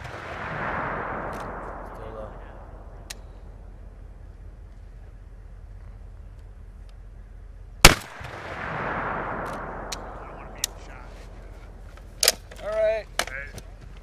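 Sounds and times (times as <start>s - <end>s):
rifle shot: 0.0s - 3.6s, 7.8s - 10.9s
rolling echo: 0.0s - 6.6s, 7.8s - 12.1s.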